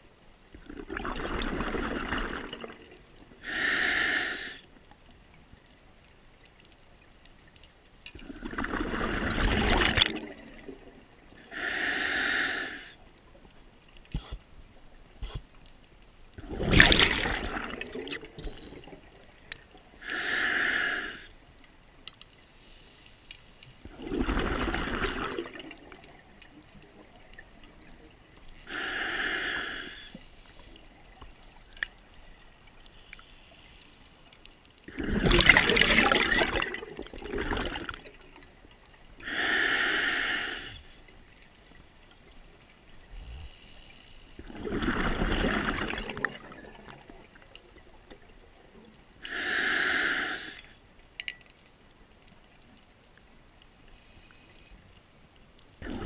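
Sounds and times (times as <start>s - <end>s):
exhaled bubbles underwater: 0.5s - 3.6s, 8.1s - 11.5s, 16.4s - 20.0s, 23.9s - 28.2s, 34.9s - 39.3s, 44.4s - 49.4s, 55.8s - 56.0s
regulator hissing inhalations: 3.4s - 4.6s, 11.5s - 13.0s, 20.0s - 21.3s, 22.3s - 23.9s, 28.6s - 30.6s, 32.8s - 34.2s, 39.2s - 40.9s, 43.1s - 44.4s, 49.2s - 50.7s.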